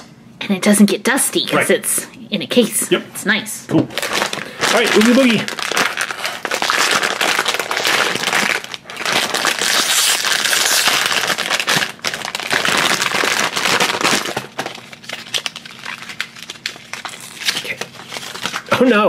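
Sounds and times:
foil bag tearing and crinkling: 0:03.9 - 0:18.8.

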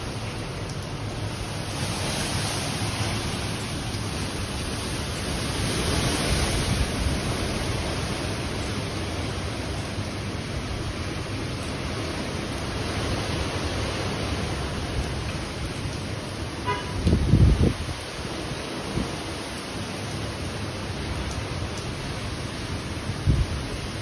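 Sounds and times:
hurricane wind and rain: 0:00.0 - 0:24.0
wind buffeting microphone: 0:17.0 - 0:18.1.

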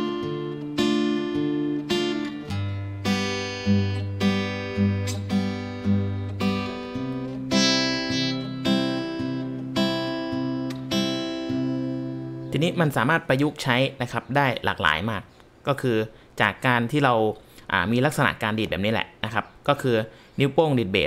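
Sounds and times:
fingerstyle acoustic guitar: 0:00.0 - 0:12.6.

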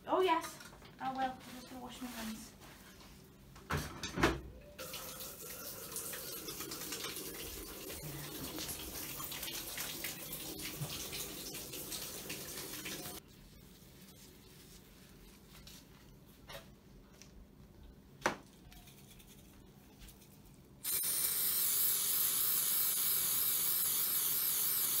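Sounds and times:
tap water running into sink: 0:04.8 - 0:13.2.

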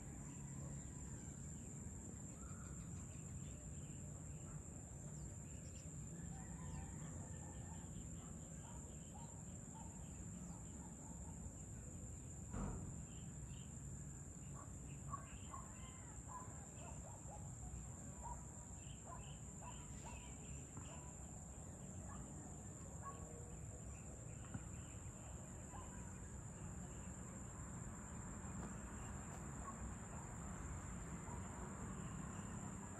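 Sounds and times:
crickets and insects droning: 0:00.0 - 0:32.9
single knock: 0:12.5 - 0:12.9.

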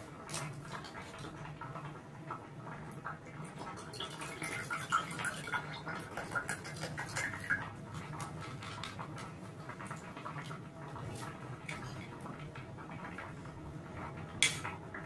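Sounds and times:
juice pouring into a mug: 0:03.2 - 0:09.2.

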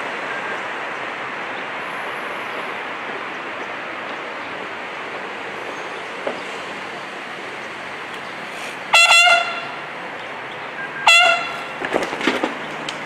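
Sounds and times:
outdoor noise hiss: 0:00.0 - 0:13.0
bugle note: 0:08.9 - 0:09.9, 0:11.0 - 0:11.8.

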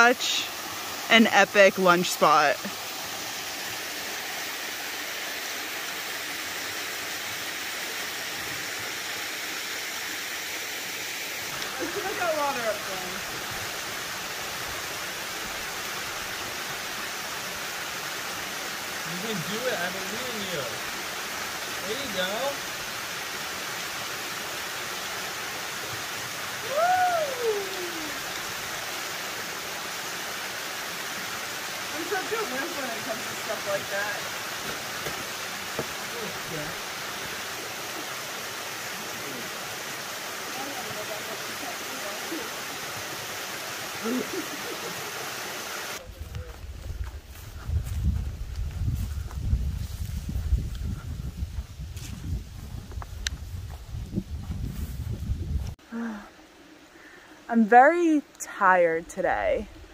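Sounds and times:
waterfall rushing: 0:00.0 - 0:46.0.

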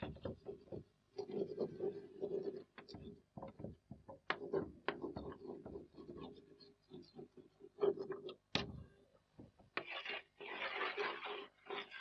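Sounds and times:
chalk writing on a blackboard: 0:09.8 - 0:12.0.

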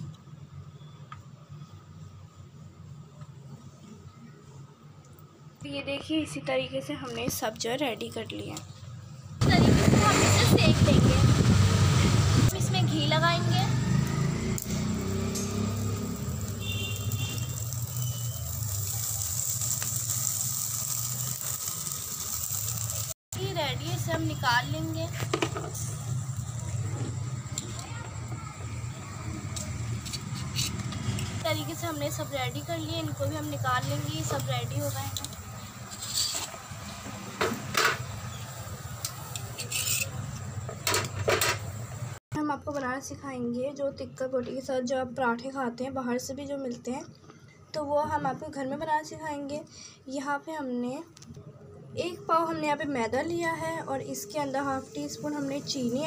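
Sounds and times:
metal tongs clinking on skewers: 0:39.0 - 0:41.6.

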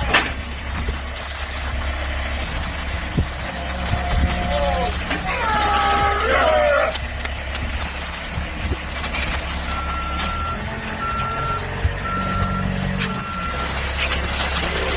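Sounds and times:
engine running steadily: 0:00.0 - 0:14.9
reversing alarm beeping: 0:09.7 - 0:13.9.

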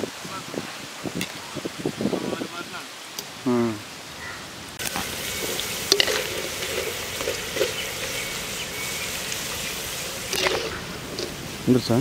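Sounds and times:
deep-frying sizzle in hot oil: 0:04.8 - 0:12.0
oil popping and crackling: 0:04.8 - 0:12.0.

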